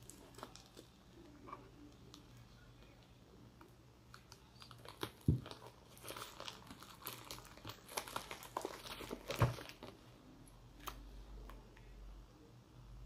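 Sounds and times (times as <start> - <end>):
plastic mailer crinkling: 4.1 - 10.0.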